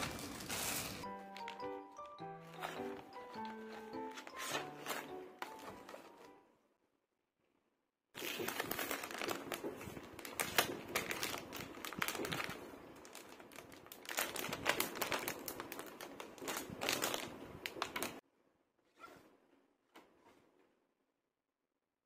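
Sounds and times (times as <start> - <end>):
plastic bag crinkling: 0.0 - 6.3, 8.2 - 18.2.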